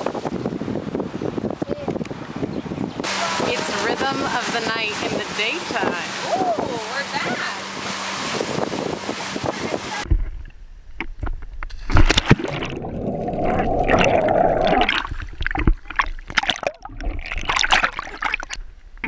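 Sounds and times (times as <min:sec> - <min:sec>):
wind and water noise: 0:00.0 - 0:19.0
muffled underwater churning: 0:10.0 - 0:19.0.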